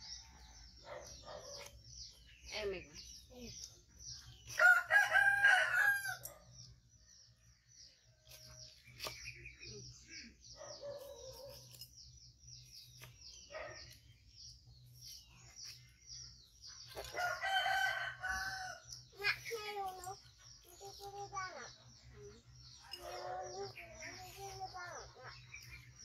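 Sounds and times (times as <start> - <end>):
rooster crowing: 4.6 - 6.2, 17.2 - 18.8.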